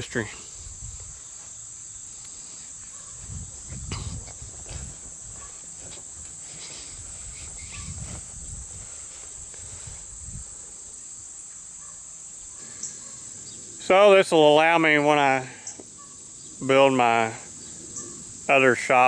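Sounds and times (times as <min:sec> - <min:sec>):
crickets chirping: 0:00.0 - 0:19.0
footsteps in grass: 0:00.5 - 0:10.6.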